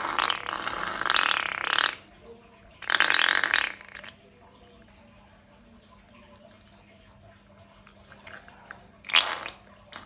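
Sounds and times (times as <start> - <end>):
air escaping balloon neck buzzing: 0.0 - 2.0, 2.8 - 4.0.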